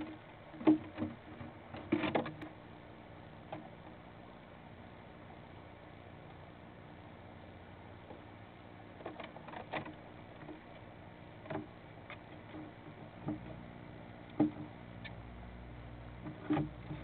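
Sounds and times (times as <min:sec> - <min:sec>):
claws knocking and scratching on wood: 0:00.0 - 0:02.6, 0:09.0 - 0:13.6, 0:14.3 - 0:14.8, 0:16.2 - 0:17.0
faint steady hum: 0:00.0 - 0:17.0.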